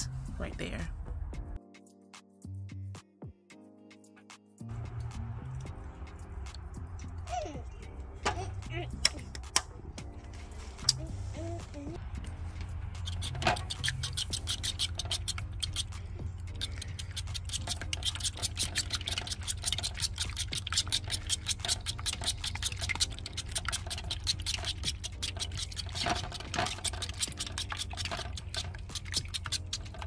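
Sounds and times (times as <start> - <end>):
egg sloshing: 12.4 - 30.0
fork beating eggs in bowl: 13.0 - 30.0.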